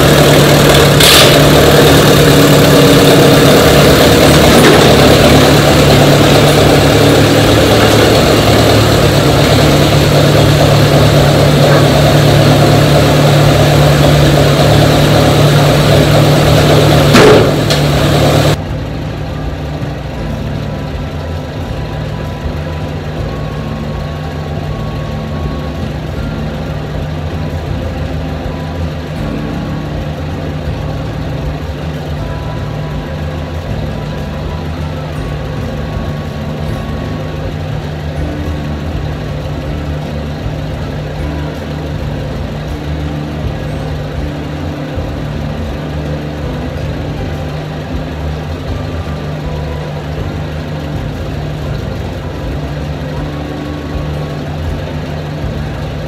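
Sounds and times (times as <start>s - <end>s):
engine idling: 0.0s - 56.0s
sharp knock: 17.1s - 17.8s.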